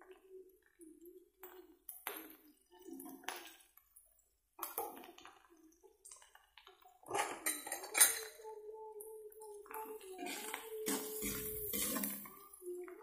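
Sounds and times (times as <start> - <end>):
utensils clinking against a wok: 7.1 - 8.4, 10.2 - 12.4.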